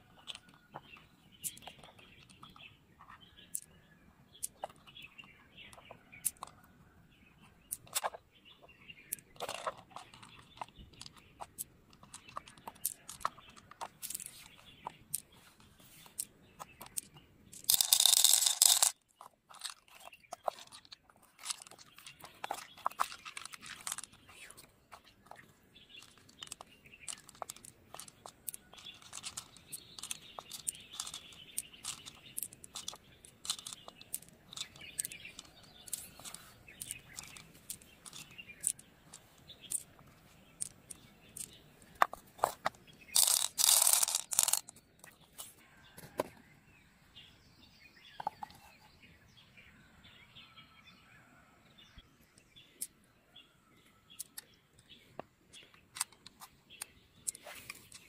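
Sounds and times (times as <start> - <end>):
birds chirping faintly: 0.0 - 58.0
pearls clicking against shell: 5.7 - 6.6, 9.0 - 24.6, 25.2 - 45.1.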